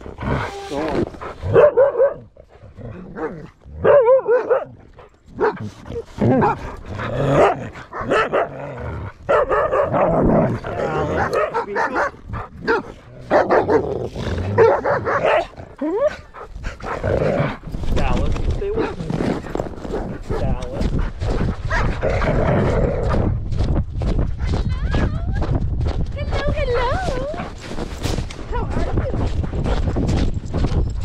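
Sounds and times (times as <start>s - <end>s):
dogs barking and growling: 0.0s - 23.4s.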